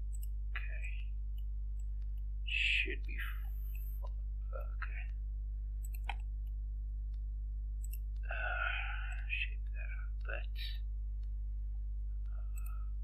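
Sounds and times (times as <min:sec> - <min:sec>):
low electrical hum: 0:00.0 - 0:13.0
keyboard and mouse clicks: 0:05.8 - 0:07.2, 0:07.8 - 0:08.3.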